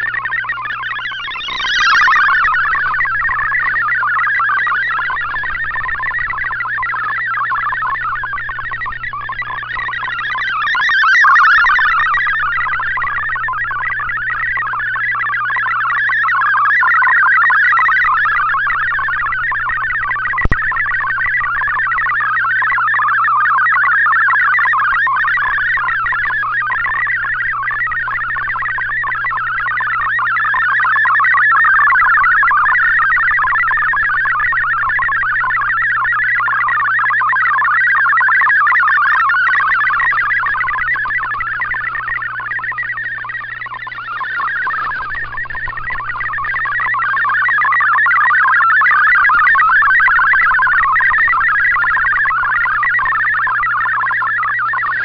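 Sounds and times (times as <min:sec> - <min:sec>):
steady low hum: 0:00.0 - 0:16.3, 0:17.2 - 0:22.2, 0:37.6 - 0:55.0
fast warble of data tones: 0:00.0 - 0:55.0.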